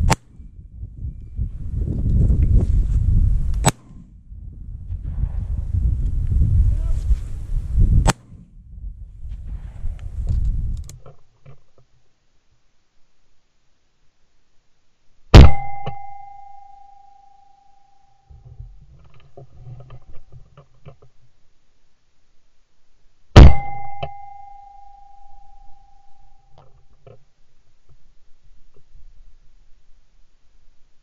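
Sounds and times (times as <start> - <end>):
shotgun shots: 15.4 - 15.8, 23.4 - 23.8.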